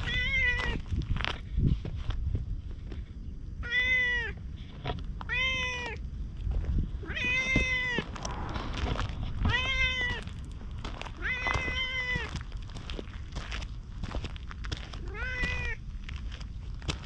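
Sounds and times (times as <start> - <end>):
cat meowing: 0.0 - 0.8, 3.6 - 4.4, 5.3 - 6.0, 7.0 - 8.0, 9.4 - 10.3, 11.2 - 12.3, 15.0 - 15.8.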